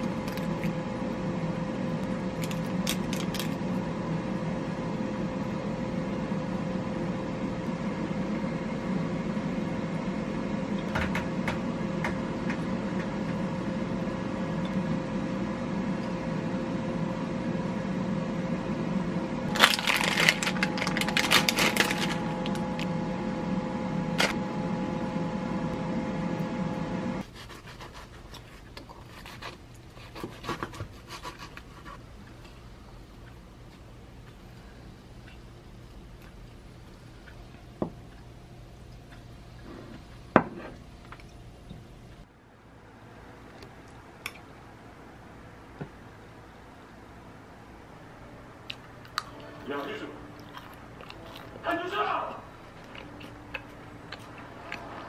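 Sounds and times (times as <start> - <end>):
steady hum: 0.0 - 55.0.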